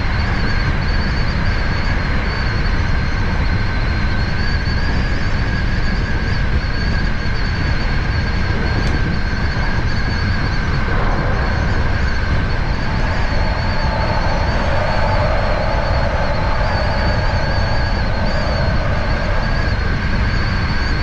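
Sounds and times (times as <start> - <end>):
constant high ringing tone: 0.0 - 21.0
train wheels rumbling on rails: 8.3 - 21.0.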